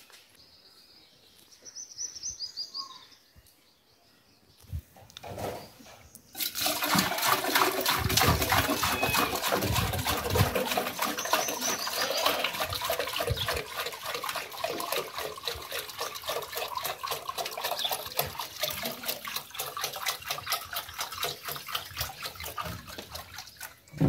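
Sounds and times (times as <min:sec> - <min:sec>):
water pouring into metal bucket: 0:06.3 - 0:24.0
gurgles from plastic can: 0:06.4 - 0:15.0.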